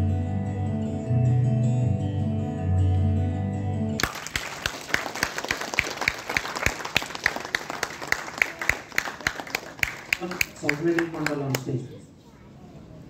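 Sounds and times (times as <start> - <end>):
audience applauding: 4.0 - 11.8
nearby hands clapping: 4.0 - 11.8.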